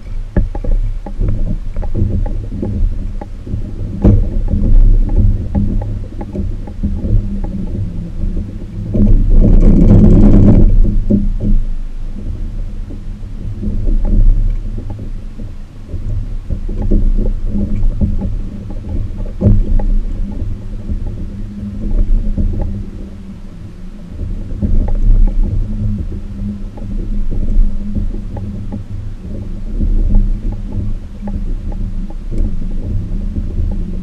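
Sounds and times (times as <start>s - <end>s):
light ticks: 0.0s - 7.9s, 13.6s - 21.3s, 21.9s - 22.8s, 24.6s - 34.0s
faint steady hum: 0.0s - 34.0s
water and wind rumble: 0.0s - 34.0s.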